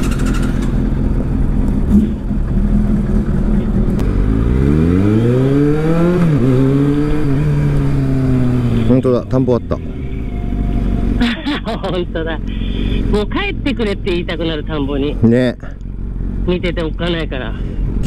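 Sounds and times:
motorcycle engine accelerating: 0.0s - 11.4s.

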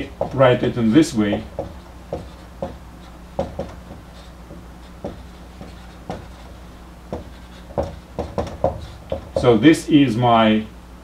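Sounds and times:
marker writing on whiteboard: 0.0s - 9.6s
faint low hum: 0.0s - 11.0s.

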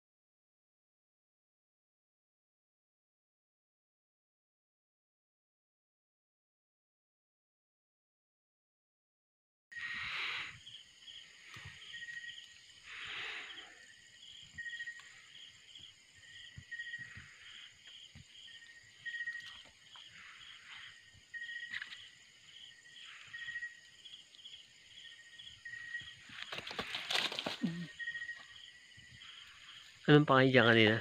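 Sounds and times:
insects trilling: 9.7s - 31.0s
pulsing insect chirp: 9.7s - 31.0s
brief rustles: 26.3s - 27.9s.

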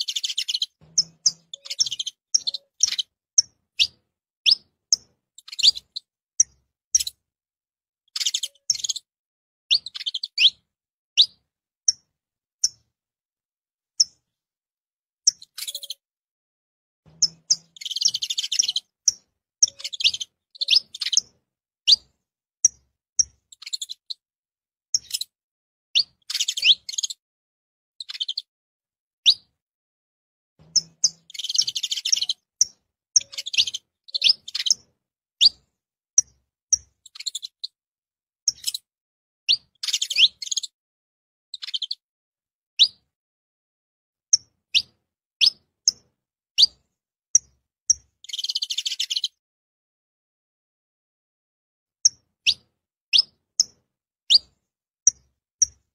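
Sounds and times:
finch chirping and twittering: 0.0s - 7.2s, 8.1s - 9.1s, 9.7s - 10.6s, 11.2s - 12.9s, 15.3s - 16.0s, 17.1s - 24.2s, 24.9s - 25.4s, 26.0s - 27.2s, 28.0s - 28.5s, 29.2s - 29.5s, 30.6s - 37.7s, 38.5s - 38.8s, 39.5s - 40.8s, 41.6s - 42.0s, 44.3s - 49.4s, 52.0s - 55.8s.

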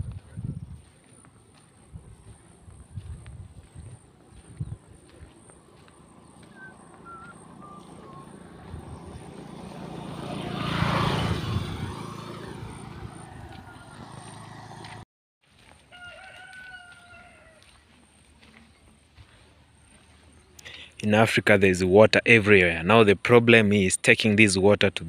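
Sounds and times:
drawn-out crowing call: 5.4s - 15.0s, 15.7s - 17.9s.

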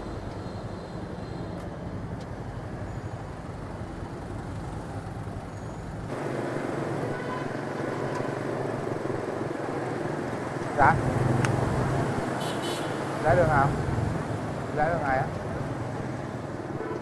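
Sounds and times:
street traffic: 0.0s - 17.0s
motor scooter engine: 6.1s - 12.6s.

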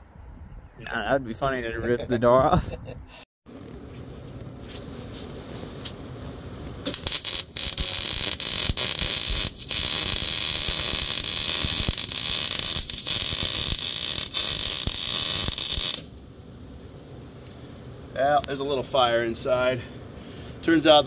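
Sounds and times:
welder arc crackling: 6.8s - 16.3s.

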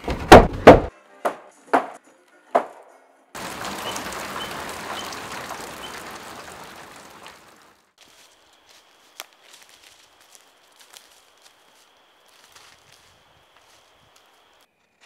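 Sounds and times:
heavy rain in forest: 3.4s - 14.7s.

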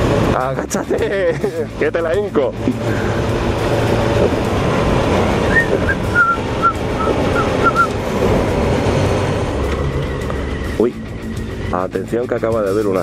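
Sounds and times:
motorcycle engine running: 0.0s - 13.0s
road and wind noise: 0.0s - 13.0s
short high whistled notes: 5.4s - 7.9s.

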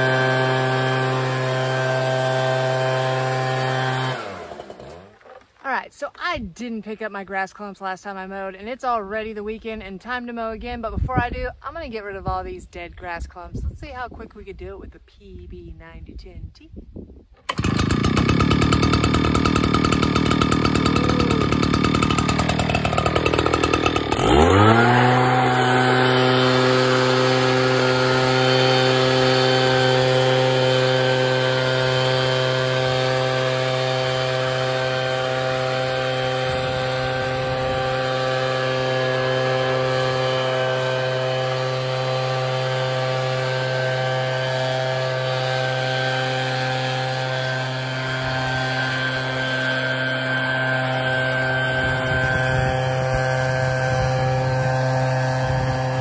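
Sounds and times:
leaf blower engine: 0.0s - 5.7s, 17.4s - 56.0s
whining fan blowing air: 17.4s - 56.0s.

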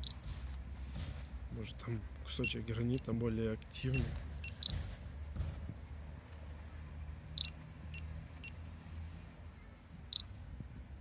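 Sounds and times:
short high-pitched beeps: 3.9s - 4.8s, 7.4s - 8.6s.

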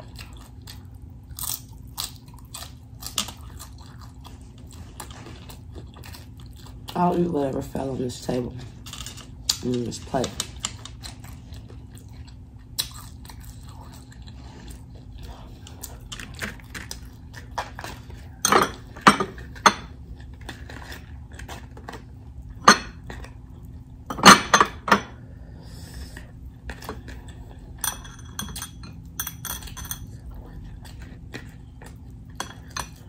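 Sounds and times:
dishes clattering: 18.4s - 19.9s, 24.1s - 25.2s
clinks against glass bowls: 27.8s - 30.1s.

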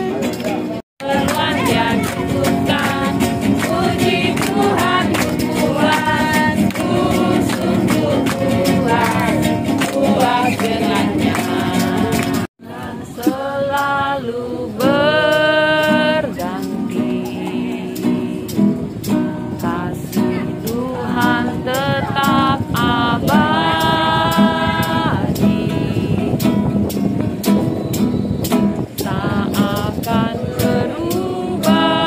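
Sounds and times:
hands clapping: 0.2s - 12.5s
group singing a worship song: 1.0s - 18.6s, 19.6s - 26.3s, 29.0s - 32.0s.

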